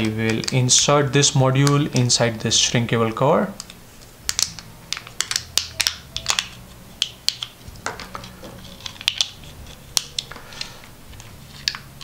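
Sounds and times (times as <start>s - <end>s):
heat-shrink tubing crinkling: 3.6s - 12.0s.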